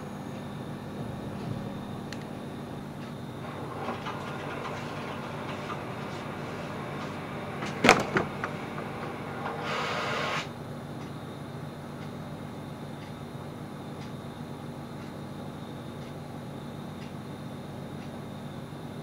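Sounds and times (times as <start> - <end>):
steady low hum: 0.0 - 19.0
short rustling hiss: 3.4 - 10.5.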